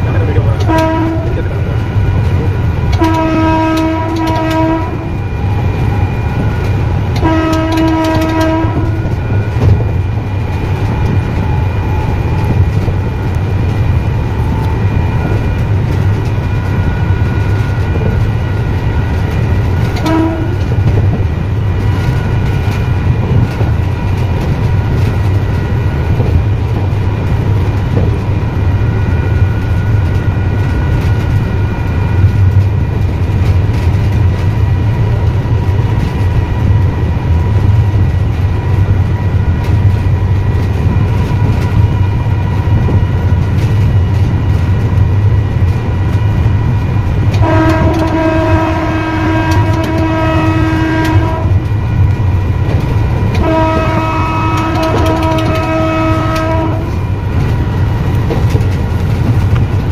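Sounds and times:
train low rumble: 0:00.0 - 0:59.9
train horn blasts: 0:00.6 - 0:01.6, 0:02.8 - 0:05.2, 0:07.1 - 0:09.8, 0:19.8 - 0:20.9, 0:47.3 - 0:52.0, 0:53.3 - 0:57.1.

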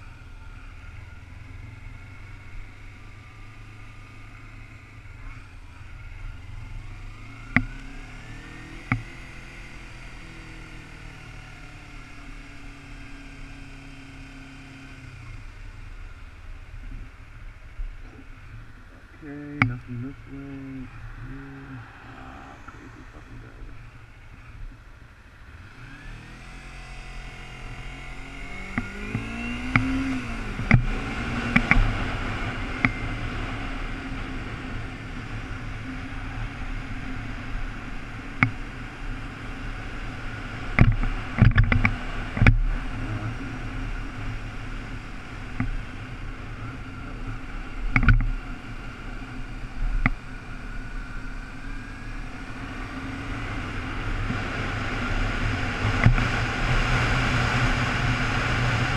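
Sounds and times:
motorcycle engine accelerating: 0:00.0 - 0:58.9
sharp thumps: 0:19.4 - 0:21.4
rush of wind noise: 0:20.8 - 0:24.6.

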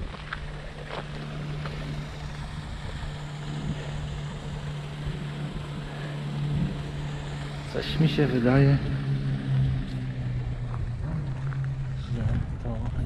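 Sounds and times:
low mechanical hum: 0:00.0 - 0:13.0
wind rumbling on microphone: 0:00.0 - 0:13.0.

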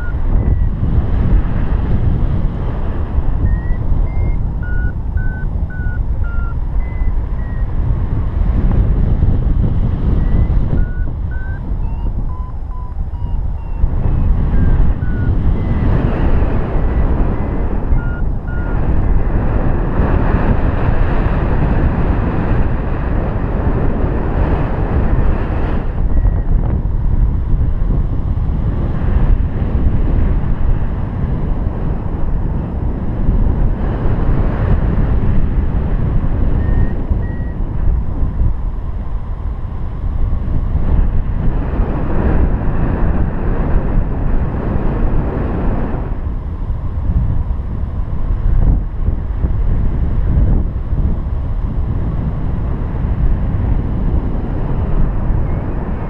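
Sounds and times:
variometer beeping: 0:00.0 - 0:00.8, 0:03.2 - 0:08.0, 0:10.0 - 0:19.2, 0:25.9 - 0:26.8, 0:36.5 - 0:38.0
wind rushing across microphone: 0:00.0 - 0:56.0.

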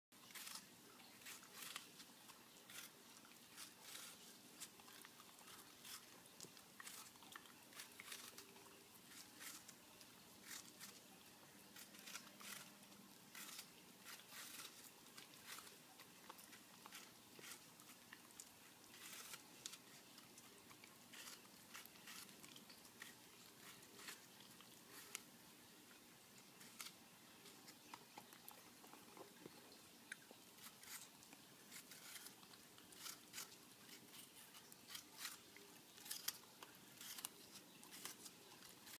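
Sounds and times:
dog chewing apple: 0:00.2 - 0:38.9.

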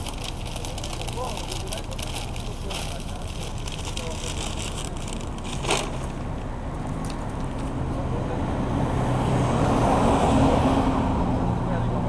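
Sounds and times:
vehicle engine passing: 0:00.0 - 0:12.0.

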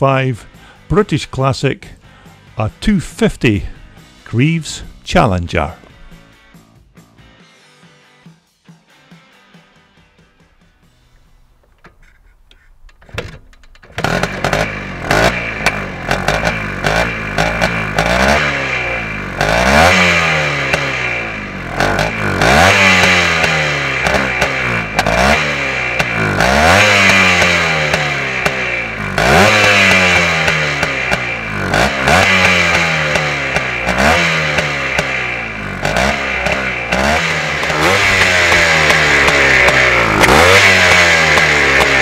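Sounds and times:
two-stroke engine revving: 0:13.9 - 0:42.0.

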